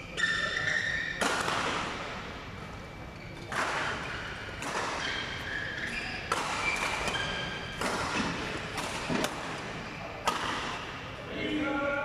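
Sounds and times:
shoe squeaks on court: 0:00.0 - 0:01.3, 0:02.9 - 0:07.8, 0:09.0 - 0:10.2
racket striking shuttlecock: 0:01.2 - 0:02.0, 0:03.5 - 0:05.3, 0:06.3 - 0:10.9.

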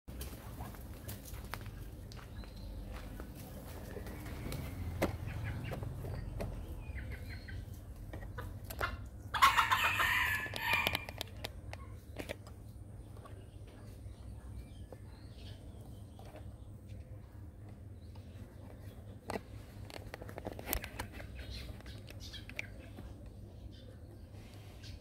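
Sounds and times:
rooster crowing: 0:09.4 - 0:11.1.

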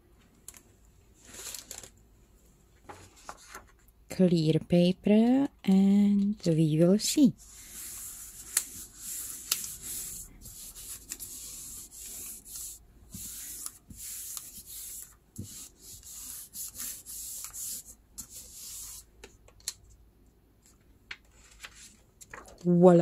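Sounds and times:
palms rubbing on paper: 0:07.4 - 0:19.1.

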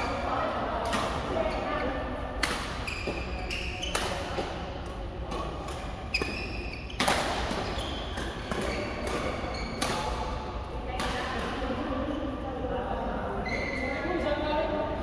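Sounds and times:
racket hitting shuttlecock: 0:02.4 - 0:11.6
shoes squeaking on court: 0:02.7 - 0:04.7, 0:05.8 - 0:10.1, 0:13.4 - 0:13.9.

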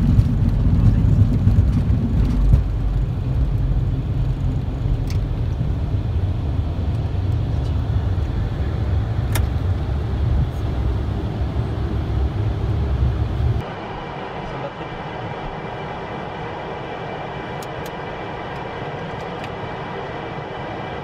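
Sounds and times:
jet engines low rumble: 0:00.0 - 0:21.0.

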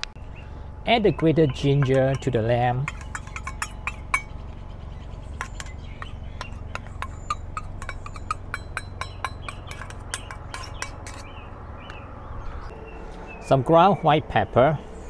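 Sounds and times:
metal spoon scraping steel bowl: 0:01.1 - 0:04.4, 0:05.3 - 0:11.4.

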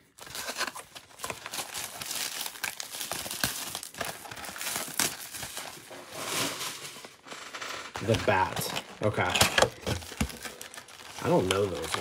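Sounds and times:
plastic wrap crinkling and tearing: 0:00.0 - 0:12.0.

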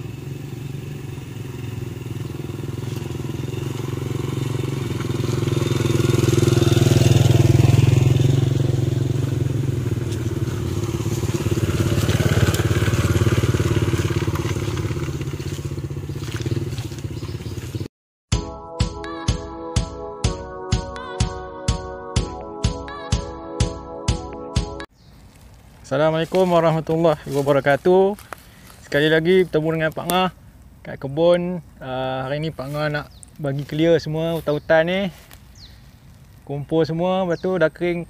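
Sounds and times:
small motorcycle engine passing: 0:00.0 - 0:17.9.

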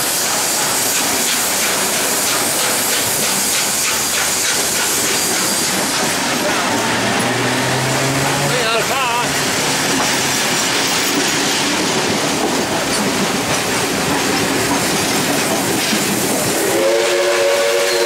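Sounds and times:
train carriages rolling on rails: 0:00.0 - 0:18.0
steam locomotive whistle: 0:16.4 - 0:18.0.

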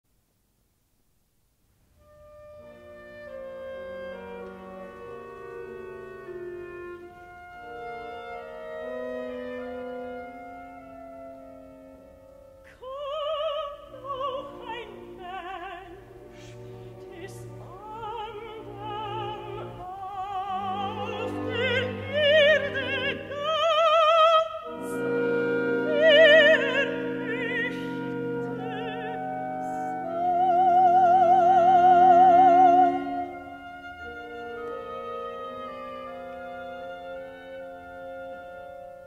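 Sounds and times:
orchestra accompaniment: 0:02.0 - 0:12.6, 0:14.0 - 0:39.0
operatic soprano singing: 0:12.7 - 0:38.5.

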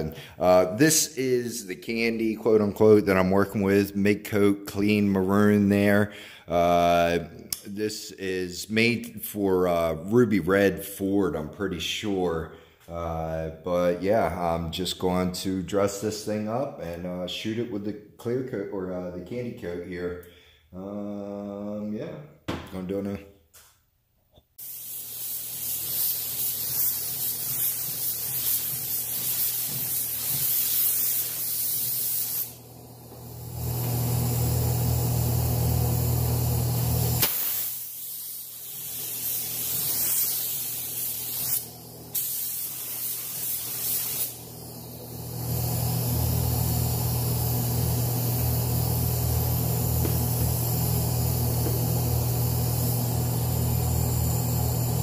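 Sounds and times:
paint spray gun hissing: 0:24.6 - 0:55.0
low hum: 0:44.8 - 0:55.0.

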